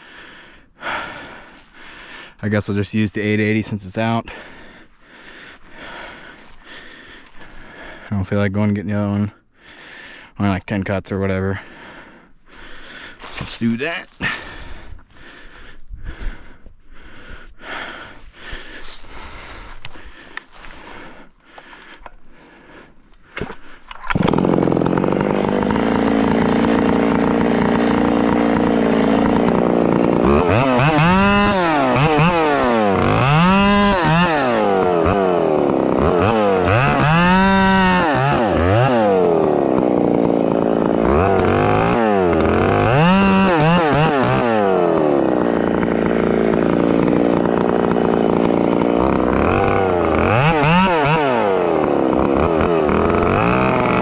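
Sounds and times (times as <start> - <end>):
chainsaw revving: 12.6 - 15.6, 23.6 - 54.0.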